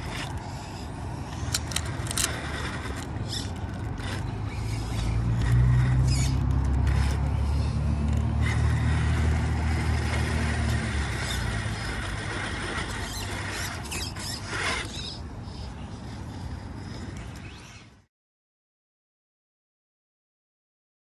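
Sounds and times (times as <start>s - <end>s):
electric motor whirring: 0.0s - 15.0s.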